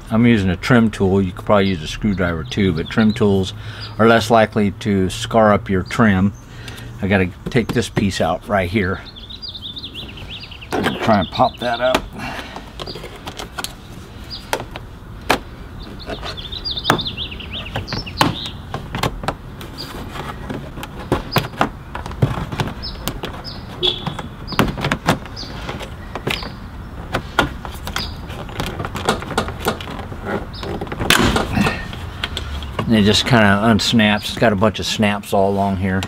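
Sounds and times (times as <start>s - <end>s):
plastic trim rattling: 16.0s - 32.9s.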